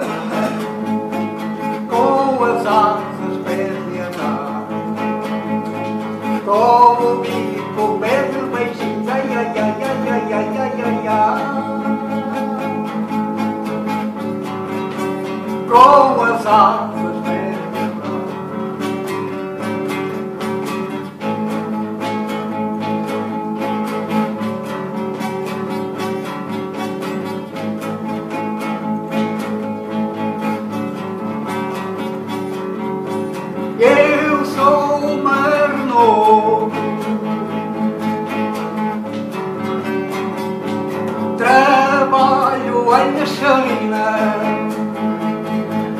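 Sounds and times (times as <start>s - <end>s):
man singing: 0.0s - 5.3s, 6.2s - 14.0s, 15.3s - 18.4s, 33.7s - 37.4s, 41.2s - 45.9s
acoustic guitar strumming: 0.0s - 45.9s.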